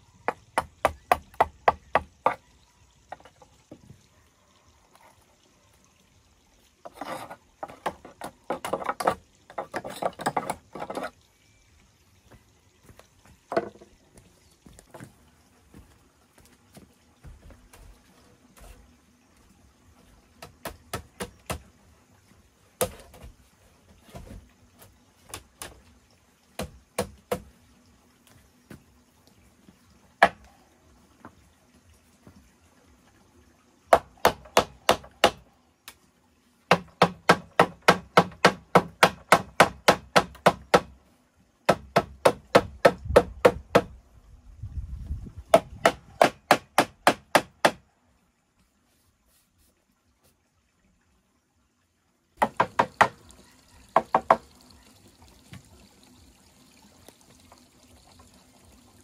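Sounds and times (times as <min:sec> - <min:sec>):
hand tool striking bamboo: 0:36.7 - 0:40.9, 0:45.5 - 0:47.8.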